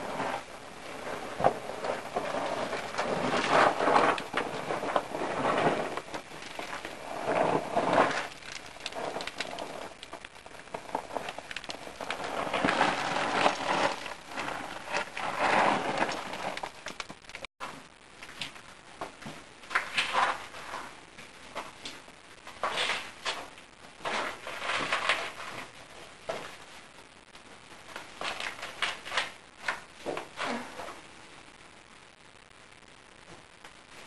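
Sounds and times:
rustling and scraping: 0.0s - 26.8s, 27.8s - 31.0s
fine crackling clicks: 1.4s - 17.5s.

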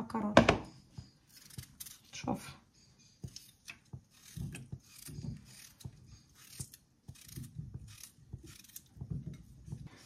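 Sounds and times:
knife cutting a vegetable: 1.3s - 2.3s, 3.2s - 10.0s.

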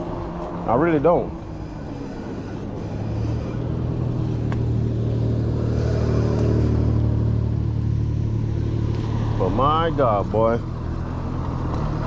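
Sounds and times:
electric bike motor humming: 0.0s - 7.6s.

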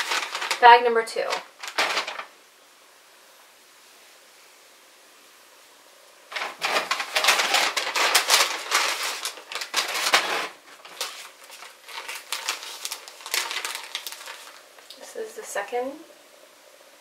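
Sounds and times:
plastic bag crinkling: 0.0s - 2.3s, 6.3s - 15.1s.

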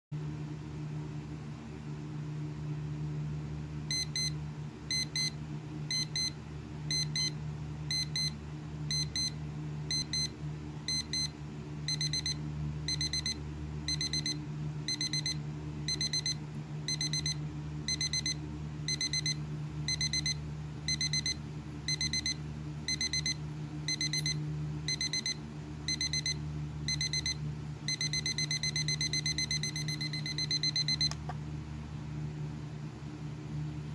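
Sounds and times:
steady low hum: 0.2s - 33.9s
alarm clock beeping: 3.9s - 6.3s, 6.9s - 9.3s, 9.9s - 10.3s, 10.9s - 11.3s, 11.9s - 31.2s.

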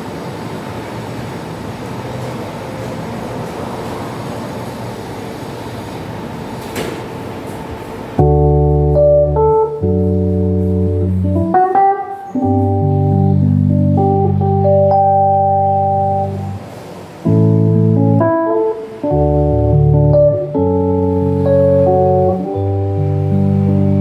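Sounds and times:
sustained organ chords: 8.2s - 24.0s
steady rushing noise: 15.8s - 24.0s.

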